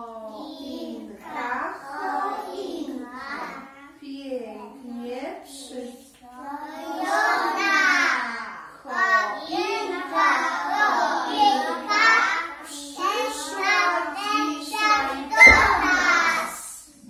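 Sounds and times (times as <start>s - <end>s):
young children singing: 6.4s - 17.0s.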